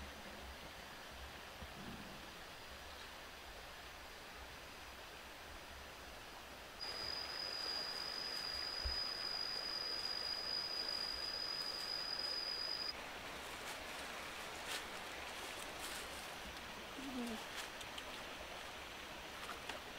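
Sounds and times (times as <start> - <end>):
insect singing high note: 6.8 - 12.9.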